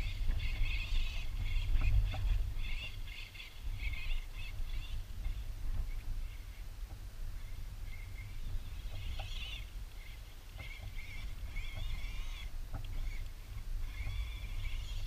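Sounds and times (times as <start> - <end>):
wind buffeting microphone: 0.0 - 15.0
faint clicks: 8.1 - 15.0.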